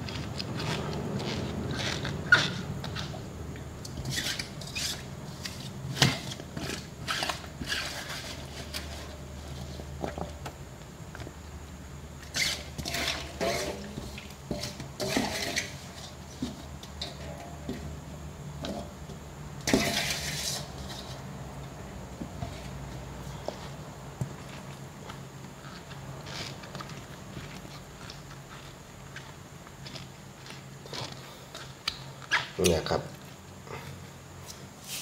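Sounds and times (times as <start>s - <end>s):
bamboo shoots crunching in jar: 0.0s - 3.2s
steady low hum: 0.0s - 35.0s.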